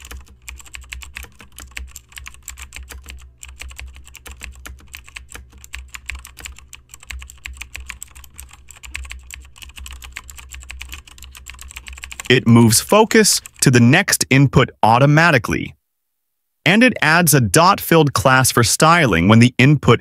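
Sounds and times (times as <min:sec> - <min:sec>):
fast keyboard typing: 0:00.0 - 0:13.7.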